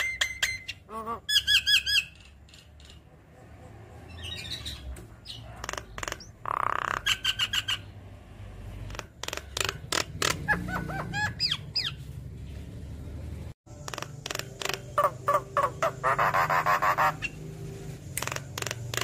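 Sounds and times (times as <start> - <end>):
bird singing clicks and whistles: 0.0 - 0.8, 5.0 - 7.7, 13.8 - 15.2, 18.1 - 19.0.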